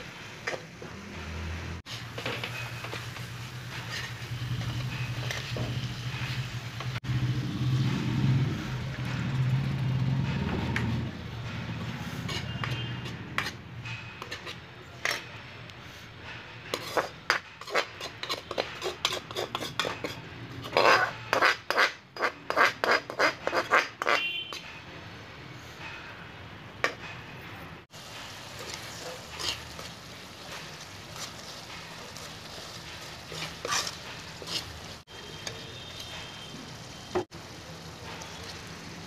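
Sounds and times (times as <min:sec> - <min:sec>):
spoon scraping metal pan: 0:01.9 - 0:07.0, 0:11.8 - 0:15.4, 0:16.3 - 0:24.8, 0:28.1 - 0:37.3.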